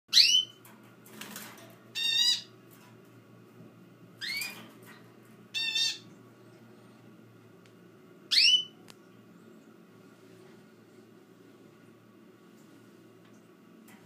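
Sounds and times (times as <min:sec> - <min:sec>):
small birds chirping: 0:00.1 - 0:00.6, 0:01.9 - 0:02.5, 0:05.5 - 0:06.6, 0:08.3 - 0:09.7.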